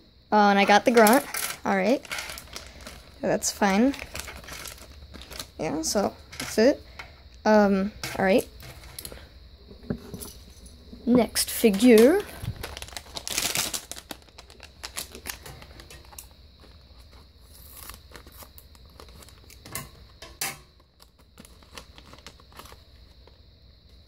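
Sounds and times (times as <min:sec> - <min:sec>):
plastic foil crinkling: 0:00.6 - 0:06.7, 0:11.3 - 0:20.0, 0:20.8 - 0:23.3.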